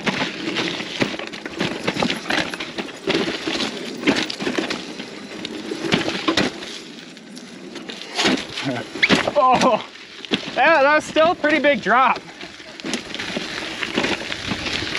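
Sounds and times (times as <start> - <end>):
bike hitting rock: 0.0 - 6.8, 7.8 - 14.9
bike rattling over rocks: 0.0 - 14.9.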